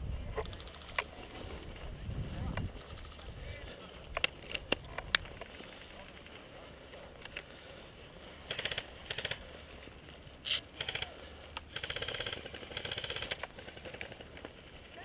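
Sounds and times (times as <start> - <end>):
airsoft guns firing bursts: 8.4 - 9.4, 10.8 - 14.3.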